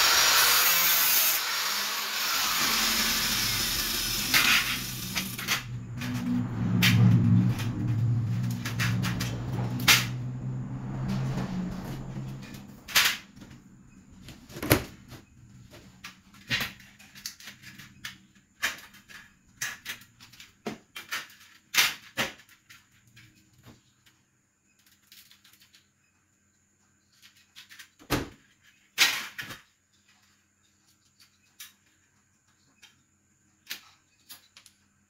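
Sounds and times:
low hum: 0:02.4 - 0:14.2
tools clicking on concrete floor: 0:29.3 - 0:34.8.

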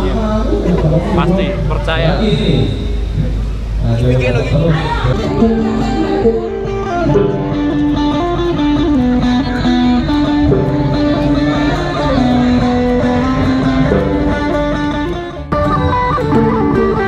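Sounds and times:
amplified plucked lute melody: 0:05.0 - 0:17.0.

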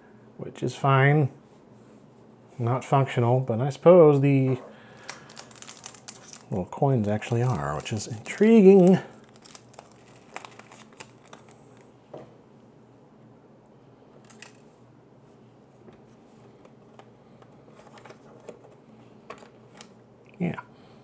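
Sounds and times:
packaging rustling: 0:04.9 - 0:11.9, 0:14.2 - 0:14.6.

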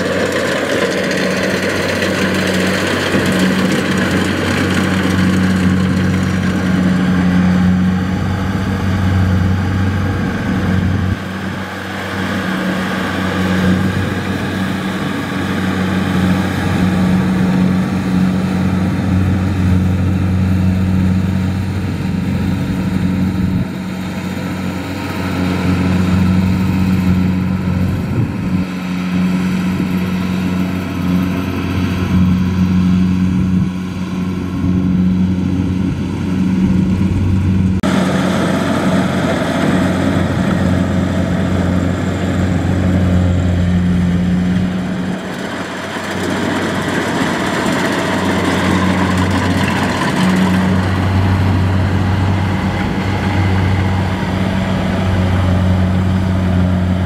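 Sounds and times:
combine harvester engine droning: 0:00.0 - 0:57.0.

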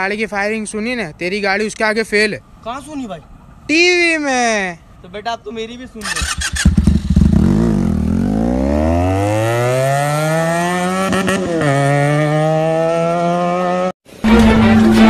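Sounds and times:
motorcycle accelerating: 0:06.0 - 0:14.0.

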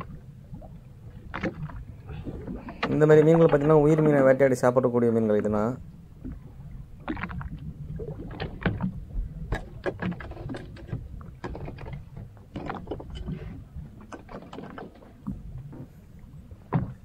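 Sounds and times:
low steady rumble: 0:00.0 - 0:14.2
water against boat hull: 0:00.0 - 0:17.0
line hauling knocks and clicks: 0:08.2 - 0:16.0, 0:16.6 - 0:17.0.

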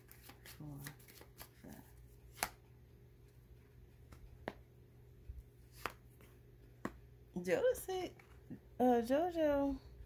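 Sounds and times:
faint low hum: 0:00.0 - 0:10.0
cards clicking: 0:02.3 - 0:02.6.

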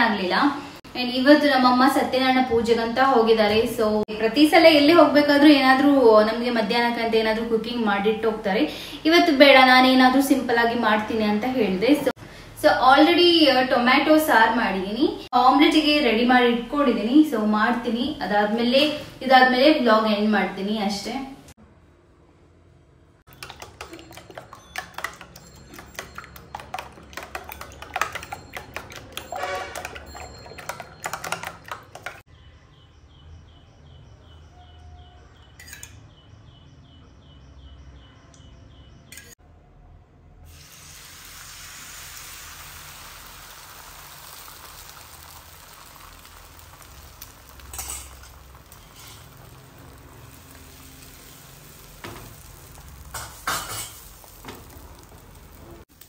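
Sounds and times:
omelette sizzling in a pan: 0:40.5 - 0:56.0.

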